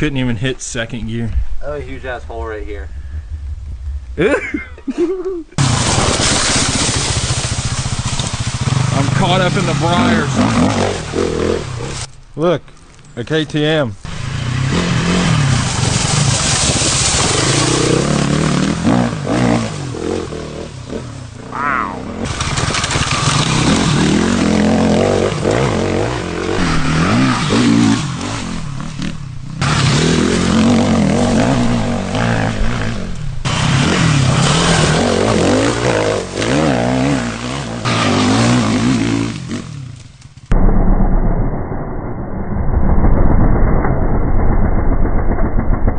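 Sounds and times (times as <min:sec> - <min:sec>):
dirt bike engine revving: 0:05.6 - 0:12.1, 0:14.1 - 0:40.0.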